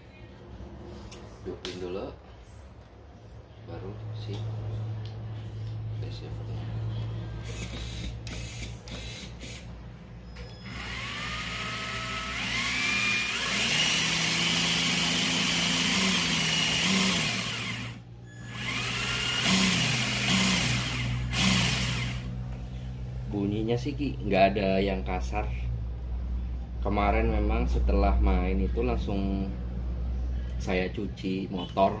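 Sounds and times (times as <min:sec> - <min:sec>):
electric motor whirring: 0:07.4 - 0:09.7, 0:10.6 - 0:22.3.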